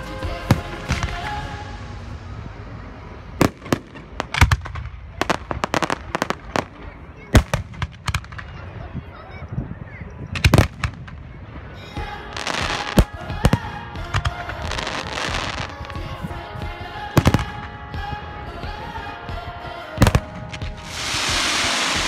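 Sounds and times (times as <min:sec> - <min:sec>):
crackling fireworks: 0:00.0 - 0:09.3, 0:10.3 - 0:16.2, 0:20.0 - 0:22.0
firework shells bursting: 0:20.6 - 0:22.0.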